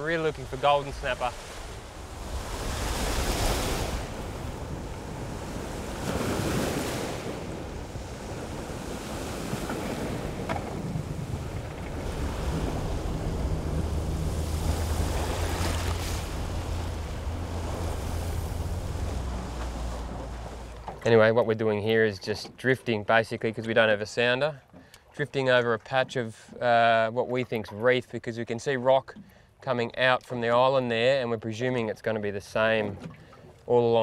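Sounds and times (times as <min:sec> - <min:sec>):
wind on microphone: 0:00.0 - 0:20.8
outboard motor humming: 0:00.0 - 0:21.1
small waves breaking: 0:00.0 - 0:21.2, 0:32.7 - 0:34.0.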